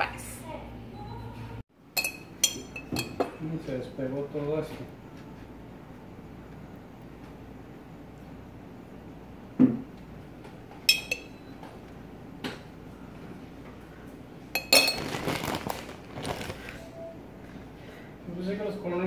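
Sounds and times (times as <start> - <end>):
metal spoon knocking and clinking: 10.9 - 11.4.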